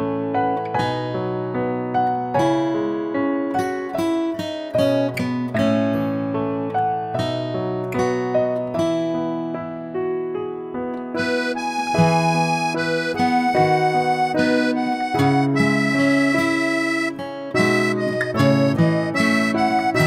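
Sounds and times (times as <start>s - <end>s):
reedy accordion-like melody: 11.2s - 20.0s.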